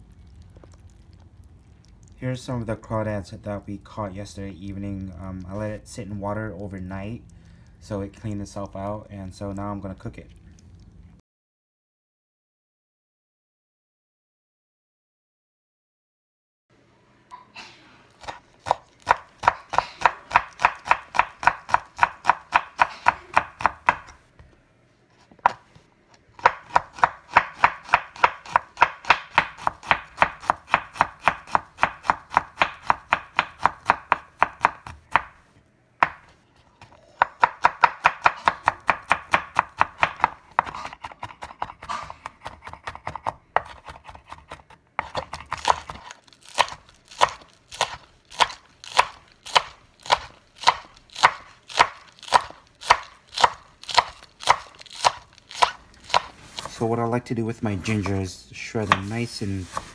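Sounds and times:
knife chopping on wooden board: 18.2 - 24.2, 26.4 - 35.4, 36.0 - 36.3, 37.2 - 56.8, 58.8 - 59.9.

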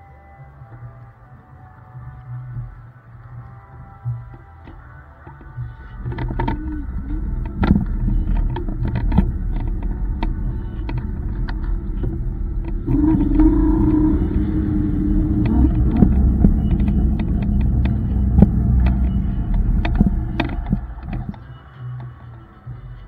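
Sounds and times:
road rumble: 0.0 - 23.0
steady hum: 2.0 - 23.0
wind on microphone: 5.7 - 21.5.

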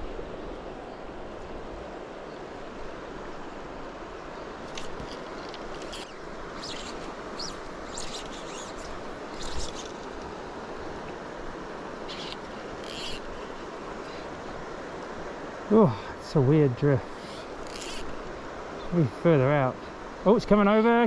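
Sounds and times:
river water rushing: 0.0 - 21.0
high bird chirps: 5.9 - 10.0, 12.1 - 13.2.

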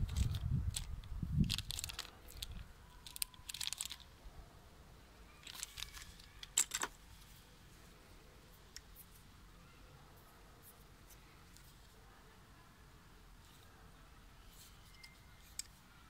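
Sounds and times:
plastic bag crinkling: 0.0 - 4.2, 5.4 - 6.9.

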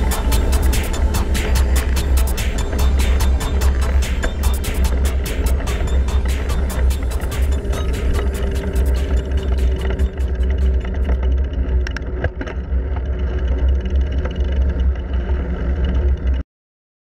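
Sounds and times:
bike clicks and rattles: 10.1 - 16.4
bicycle tyre rumble on tarmac: 10.8 - 16.4.

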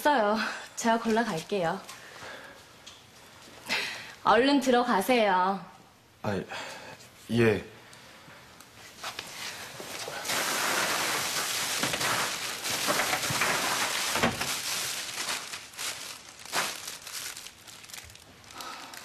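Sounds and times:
plastic bags rustling and crinkling: 9.0 - 19.0.

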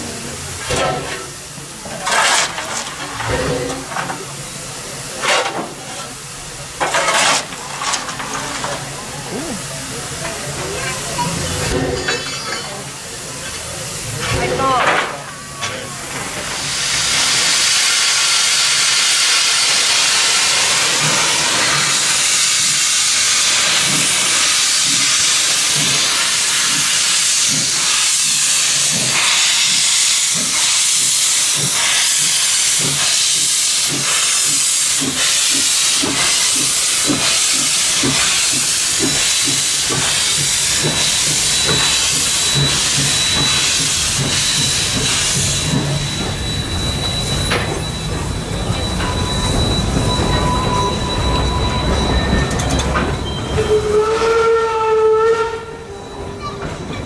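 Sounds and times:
loud hiss of steam: 0.0 - 56.8
steam locomotive exhaust chuffs: 16.0 - 56.9.

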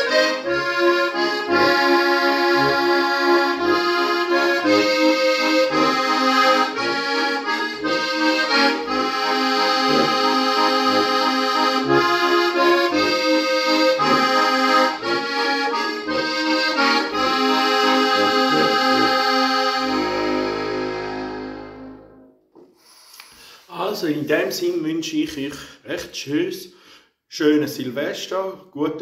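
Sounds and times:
button accordion folk tune: 0.0 - 22.4.

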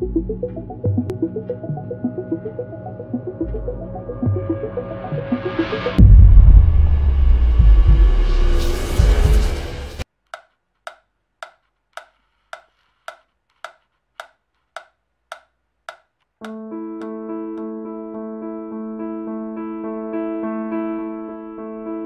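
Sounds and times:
electric piano chords: 0.0 - 6.0, 16.5 - 22.0
sharp ticks: 10.3 - 16.6.

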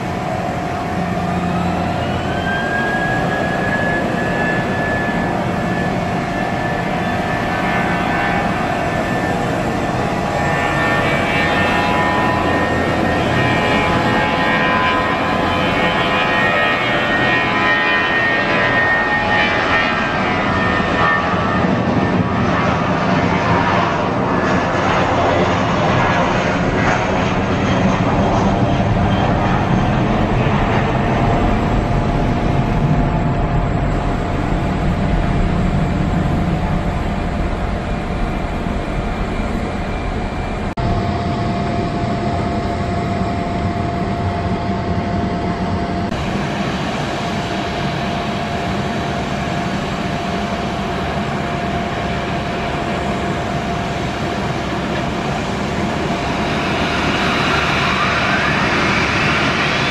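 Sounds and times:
jet engines at takeoff: 0.0 - 59.9.

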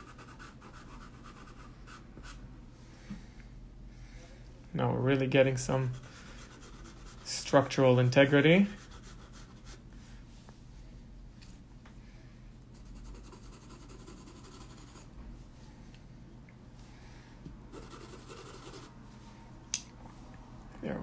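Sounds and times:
pencil scratching on paper: 0.0 - 2.4, 5.8 - 9.8, 12.8 - 15.1, 17.7 - 19.0.

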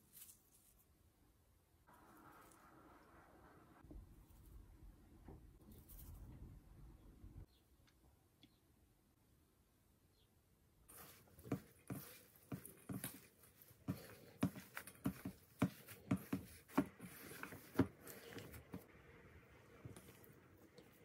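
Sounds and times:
hand squishing mashed potato: 10.9 - 21.0.

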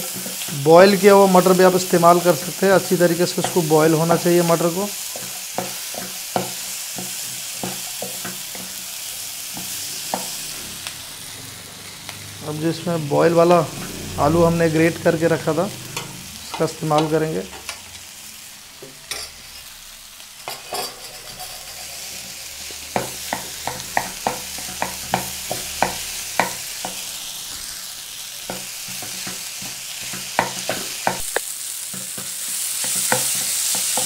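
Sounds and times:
frying sizzle: 0.0 - 34.0
spatula knocking against pan: 22.9 - 27.0.

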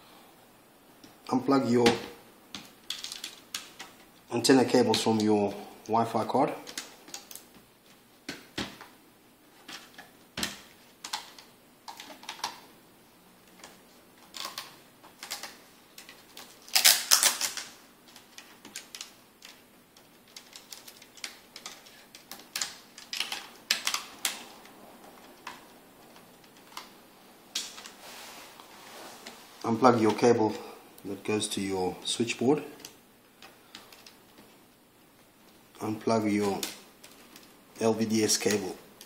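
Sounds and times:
scraping rustle: 27.8 - 30.0.

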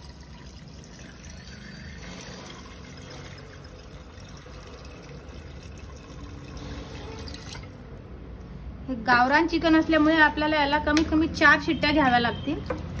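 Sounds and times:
water pouring into a pot: 0.0 - 7.9.

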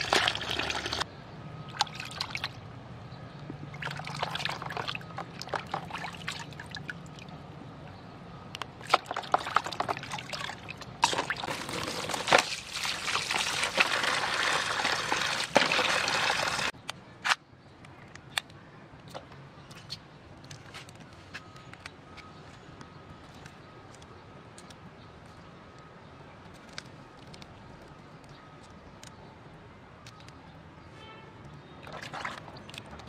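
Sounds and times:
water pouring: 0.0 - 1.0, 3.8 - 7.2, 8.9 - 16.7, 31.8 - 33.0
water splashing in plastic basin: 0.0 - 1.0, 1.7 - 2.6, 3.8 - 7.2, 8.8 - 16.7, 31.8 - 33.0.

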